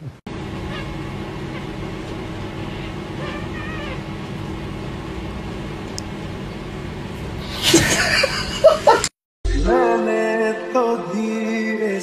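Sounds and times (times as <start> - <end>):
steady machine hum: 0.0 - 9.1.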